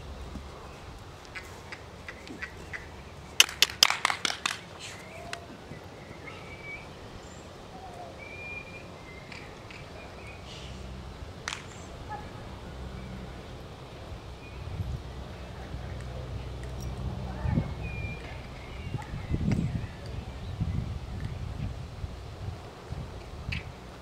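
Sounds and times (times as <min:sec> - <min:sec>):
outdoor background noise: 0:00.0 - 0:24.0
sharp cracks: 0:01.2 - 0:05.5, 0:11.4 - 0:12.3.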